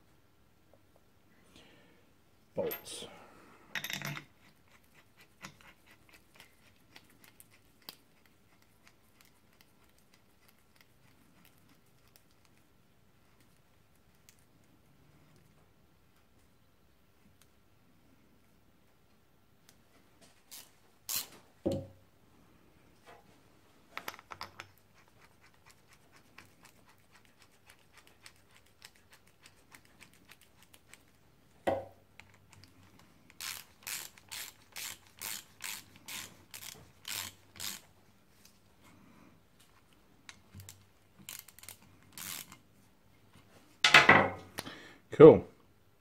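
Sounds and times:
hand ratchet clicking: 20.5s - 21.3s, 33.4s - 37.8s, 41.3s - 42.6s.

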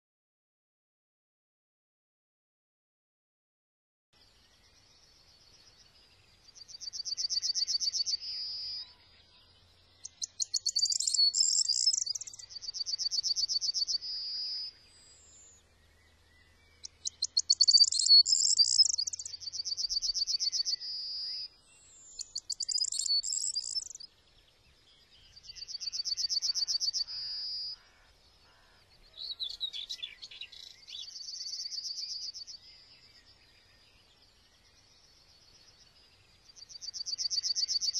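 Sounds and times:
small songbird trilling: 10.0s - 15.6s, 16.8s - 24.1s.

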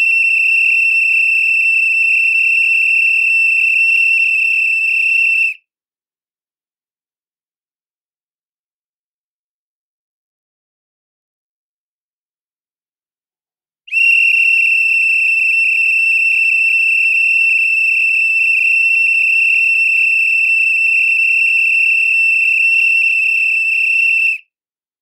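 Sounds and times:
pea whistle blast: 0.0s - 5.6s, 13.9s - 24.4s.

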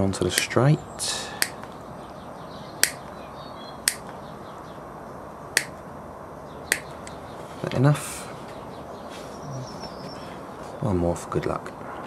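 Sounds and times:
side cutters snipping piping: 0.2s - 0.6s, 1.4s - 1.7s, 2.8s - 3.0s, 3.9s - 4.1s, 5.6s - 5.8s, 6.7s - 7.2s.

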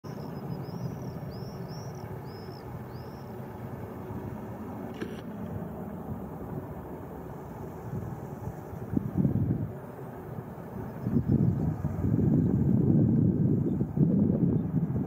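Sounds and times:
distant jet airliner rumble: 0.0s - 15.0s
bird chirping: 0.1s - 3.4s.

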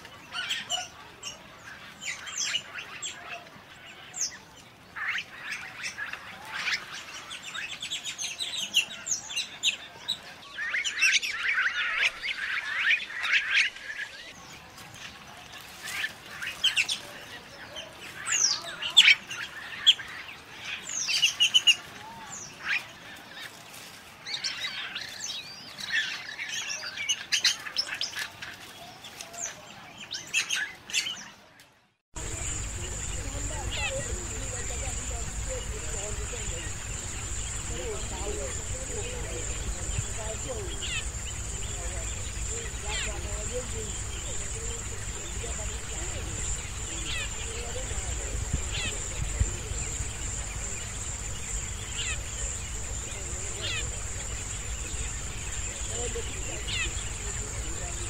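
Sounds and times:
starling chirping and whistling: 32.2s - 58.0s.

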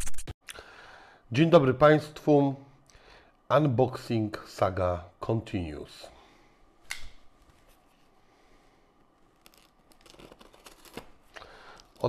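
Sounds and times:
knife slitting packing tape: 9.4s - 11.2s.

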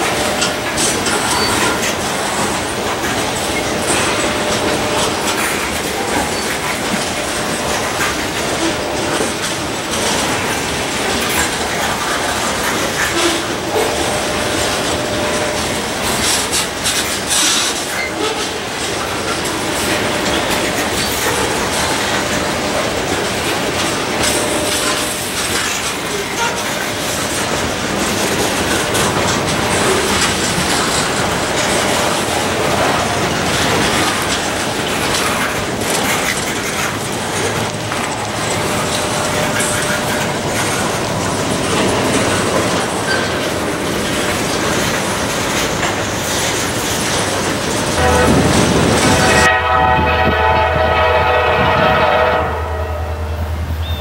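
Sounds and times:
freight train wheels rumbling on rails: 0.0s - 54.0s
diesel locomotive horn: 12.7s - 19.0s, 19.6s - 25.4s, 26.0s - 34.1s, 47.9s - 54.0s.

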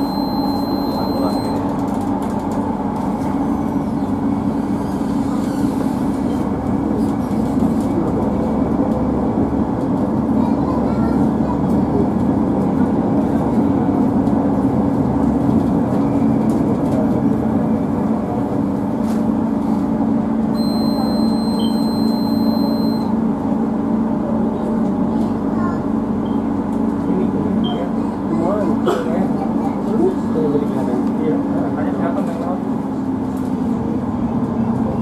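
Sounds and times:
high steady tone: 0.0s - 1.6s, 20.5s - 23.1s
light-rail train rumble and hum: 0.0s - 35.0s.

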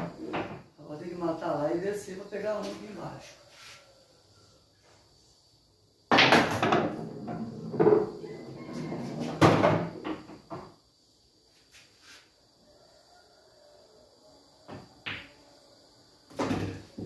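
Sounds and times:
ball rolling and knocking inside table: 0.0s - 0.7s, 6.1s - 10.8s.

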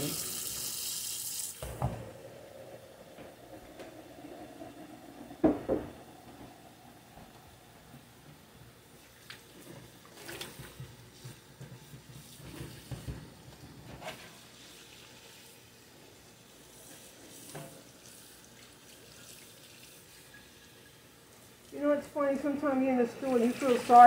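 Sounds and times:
faint water running in sink: 0.0s - 24.0s
dishes knocking and clinking: 5.3s - 6.6s.

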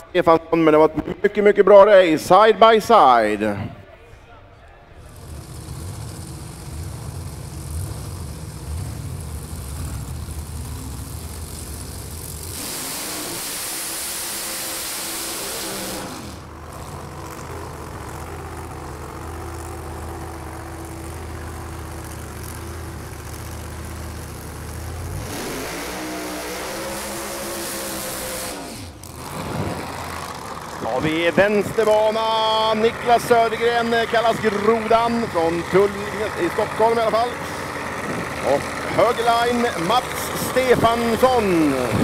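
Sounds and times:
racing car engine low rumble: 4.9s - 42.0s
loud hissing noise: 11.2s - 16.5s, 25.4s - 29.1s.

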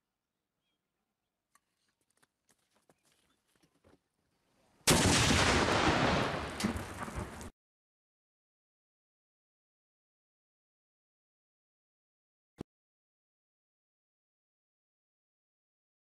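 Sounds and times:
grenade blast: 4.9s - 7.5s.

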